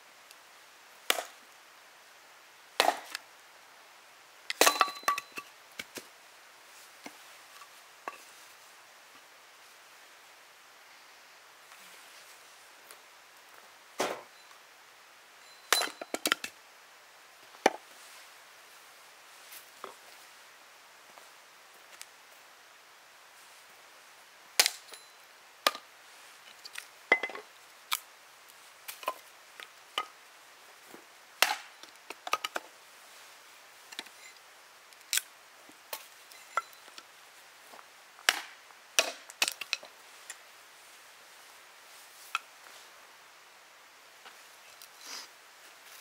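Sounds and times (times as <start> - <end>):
hatchet chopping wood: 1.1 - 1.4, 2.8 - 3.2, 24.6 - 24.8, 31.4 - 31.7, 38.3 - 39.7.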